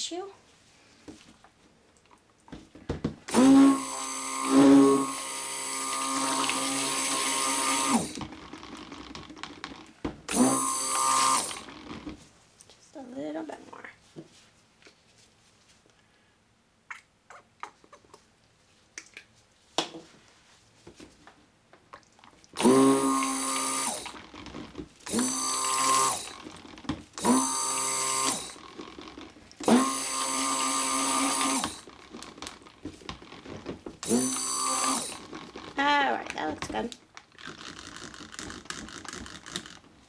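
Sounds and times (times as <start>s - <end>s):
stick blender pulses: 3.3s - 9.0s, 10.3s - 12.0s, 22.6s - 33.4s, 34.0s - 35.8s.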